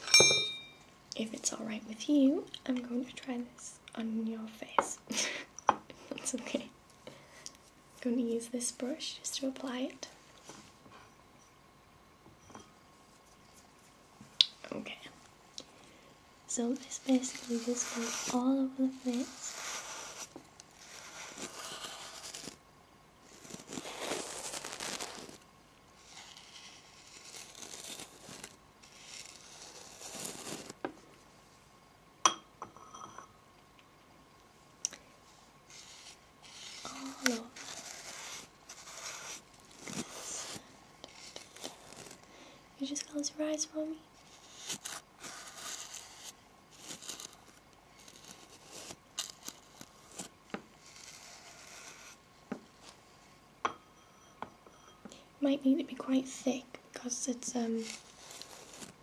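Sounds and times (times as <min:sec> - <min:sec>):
brush clinking on ceramic bowl: 0:00.0 - 0:00.8
brush bristles stroking microphone: 0:16.5 - 0:22.6, 0:23.3 - 0:25.4, 0:26.0 - 0:30.8, 0:35.7 - 0:42.2, 0:44.2 - 0:52.2, 0:57.4 - 0:59.0.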